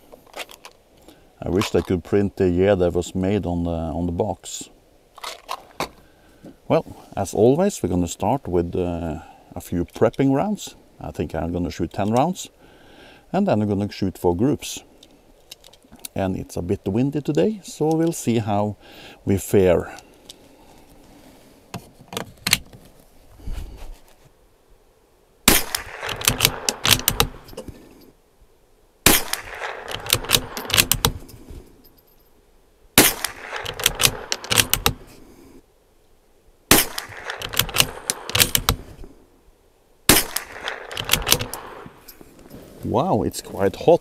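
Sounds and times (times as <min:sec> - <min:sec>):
rifle shots: 0:25.5 - 0:27.5, 0:29.0 - 0:31.2, 0:33.0 - 0:35.0, 0:36.7 - 0:38.9, 0:40.1 - 0:42.0
rifle bolt clicking: 0:25.5 - 0:27.6, 0:29.1 - 0:31.3, 0:33.0 - 0:35.0, 0:36.7 - 0:38.8, 0:40.1 - 0:41.8.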